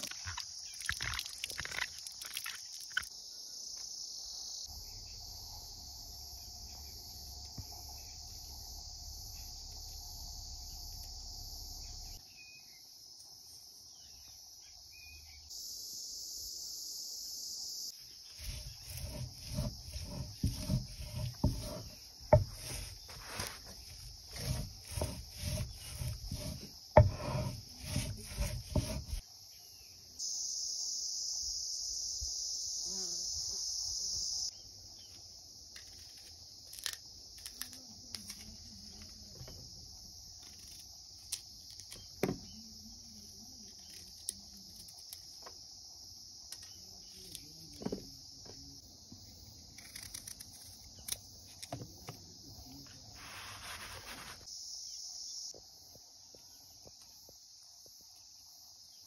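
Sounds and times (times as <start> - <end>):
crickets chirping: 0.0 - 59.0
stone roller grinding on slab: 18.3 - 29.2.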